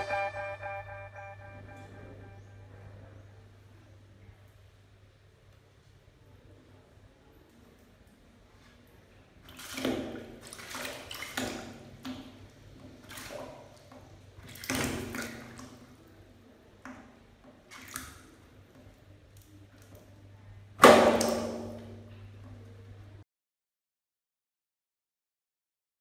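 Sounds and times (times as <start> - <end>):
rats splashing in water: 7.3 - 20.2, 20.8 - 22.6.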